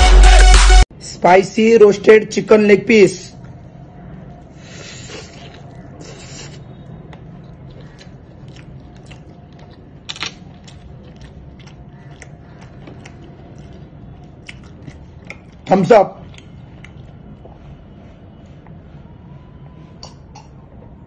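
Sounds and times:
chewing and mouth noises: 0:04.4 - 0:17.8.

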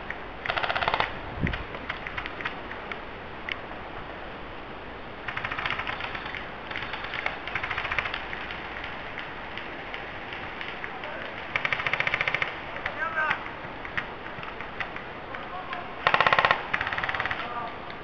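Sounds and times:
airsoft guns firing bursts: 0:00.5 - 0:01.2, 0:05.3 - 0:09.7, 0:10.3 - 0:13.0, 0:16.0 - 0:17.6.

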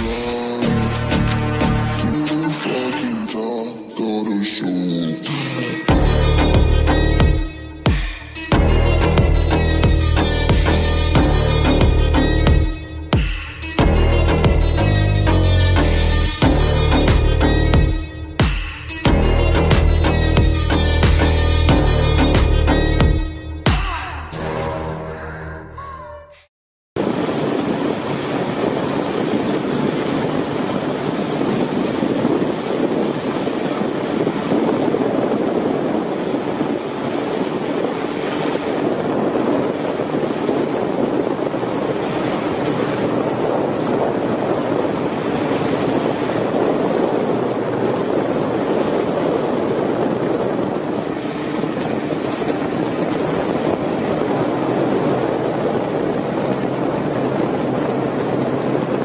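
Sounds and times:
aircraft rotor noise: 0:00.0 - 0:23.0, 0:27.0 - 0:59.0.

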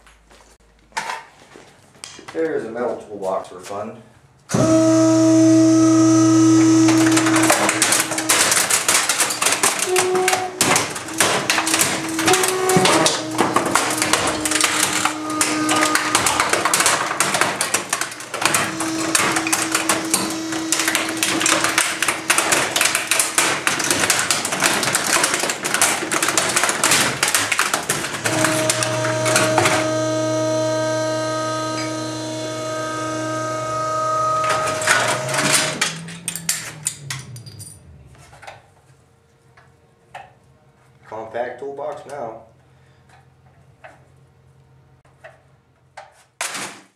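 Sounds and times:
compactor motor humming: 0:04.5 - 0:24.9, 0:27.5 - 0:37.1
sheet steel crunching: 0:04.6 - 0:38.9.

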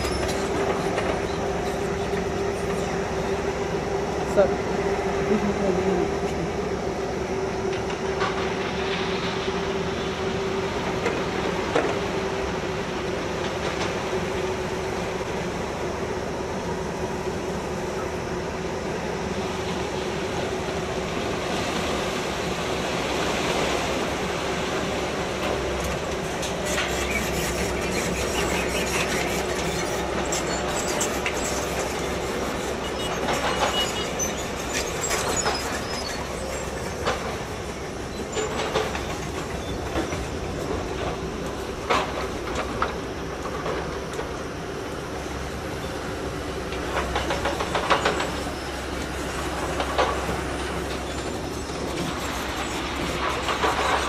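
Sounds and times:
diesel excavator engines running: 0:00.0 - 0:54.0
hydraulic whine: 0:25.4 - 0:42.8.

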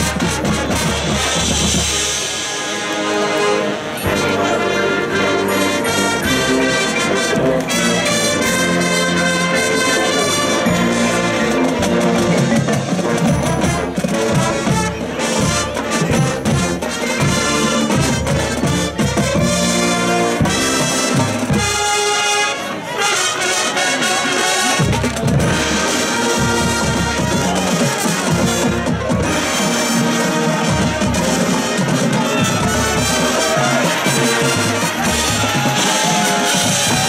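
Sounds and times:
brass sustained chords: 0:00.0 - 0:24.8, 0:25.4 - 0:37.0
drum and percussion hits: 0:11.6 - 0:22.0, 0:24.8 - 0:37.0.

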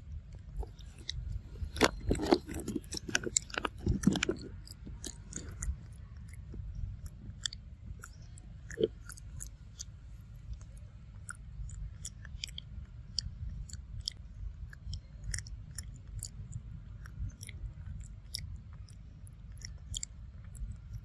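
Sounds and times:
low rumble: 0:00.0 - 0:21.0
monkey chewing wetly: 0:00.4 - 0:21.0.

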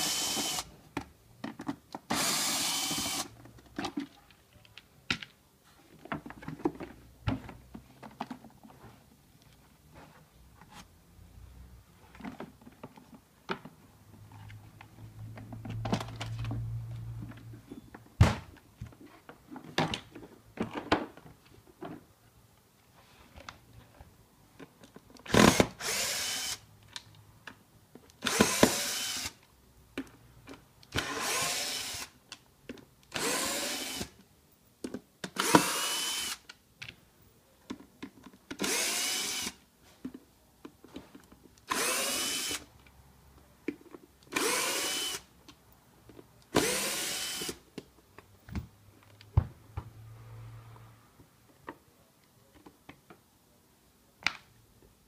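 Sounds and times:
cordless screwdriver driving screws: 0:00.0 - 0:00.7, 0:02.1 - 0:03.4, 0:25.3 - 0:26.6, 0:28.2 - 0:29.4, 0:31.0 - 0:32.1, 0:33.1 - 0:34.1, 0:35.4 - 0:36.5, 0:38.6 - 0:39.6, 0:41.7 - 0:42.7, 0:44.3 - 0:45.3, 0:46.5 - 0:47.6.

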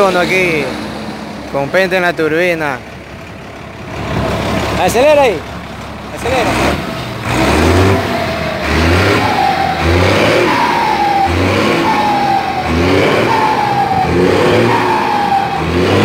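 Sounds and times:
diesel bus engine revving: 0:00.0 - 0:16.0
turbo whistle falling: 0:09.1 - 0:16.0.

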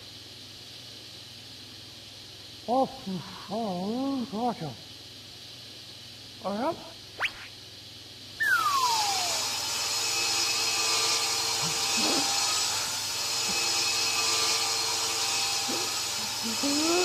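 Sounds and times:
table saw cutting wood: 0:08.6 - 0:17.0.

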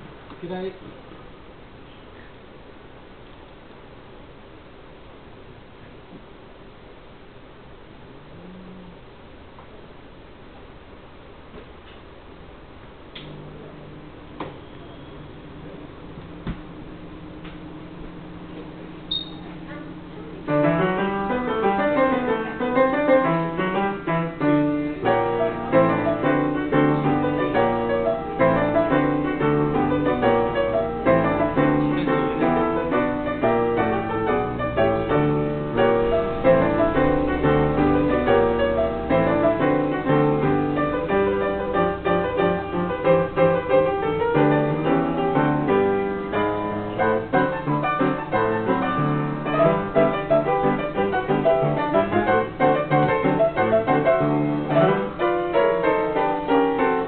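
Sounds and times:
player piano playing lively tune: 0:15.3 - 0:57.0.

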